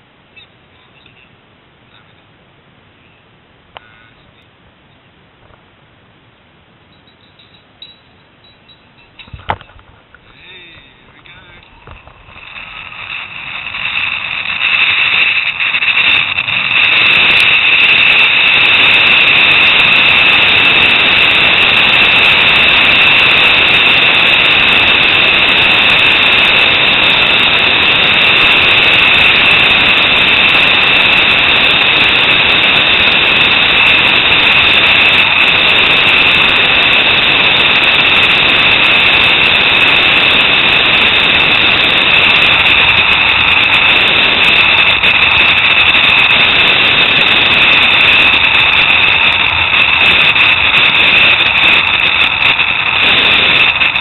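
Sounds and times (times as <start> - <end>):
rushing air: 9.2 - 54.0
zip-line pulleys whining: 11.6 - 54.0.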